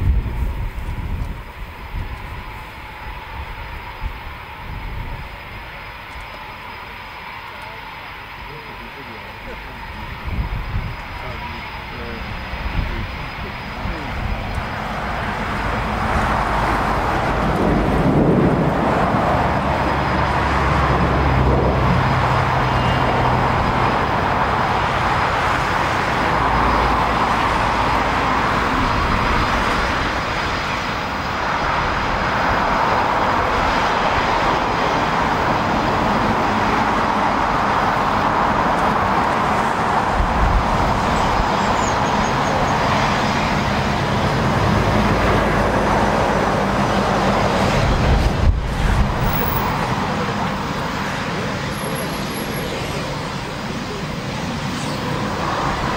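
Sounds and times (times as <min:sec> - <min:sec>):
jet engines running steadily: 0:00.0 - 0:55.9
road traffic rumbling: 0:00.0 - 0:55.9.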